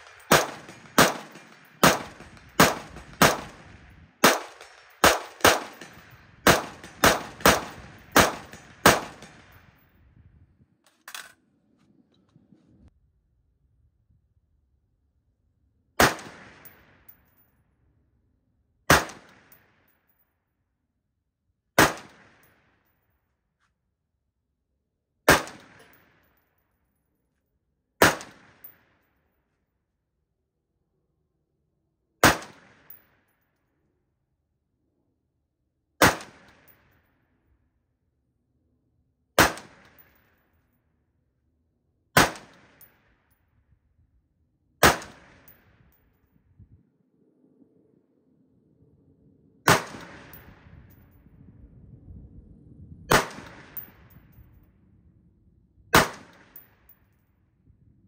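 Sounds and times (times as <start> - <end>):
rifle shots with echo: 0.0 - 9.8, 16.0 - 17.2, 18.9 - 19.8, 21.8 - 22.8, 25.3 - 26.3, 28.0 - 29.0, 32.2 - 33.2, 36.0 - 37.0, 39.4 - 40.2, 42.2 - 43.1, 44.8 - 45.8, 49.7 - 51.0, 53.1 - 54.4, 55.9 - 57.1.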